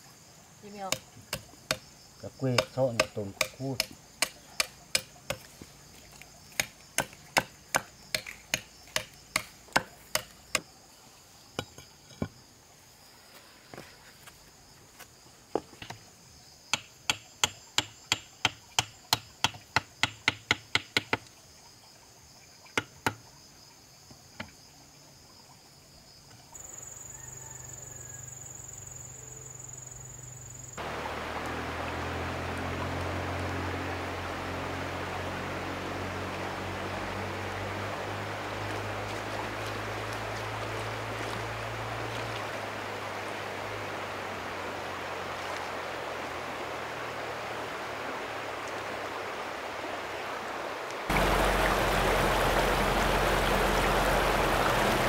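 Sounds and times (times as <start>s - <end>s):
insects chirring: 0.0s - 55.0s
hand tool strikes: 2.5s - 5.5s, 6.5s - 10.7s
high insect buzz: 26.1s - 49.4s, 51.1s - 55.0s
low hum: 30.8s - 38.8s, 51.1s - 55.0s.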